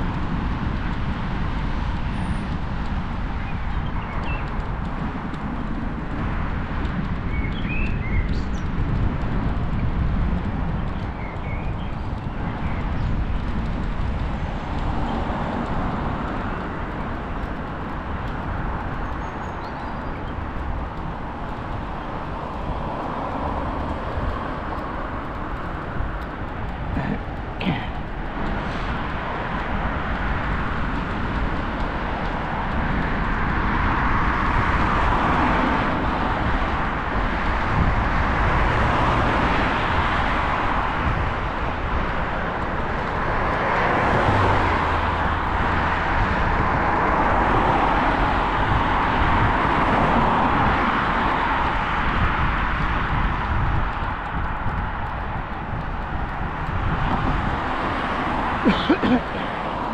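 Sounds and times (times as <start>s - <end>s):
road traffic passing: 0.0s - 59.9s
steady low rumble: 8.1s - 34.4s.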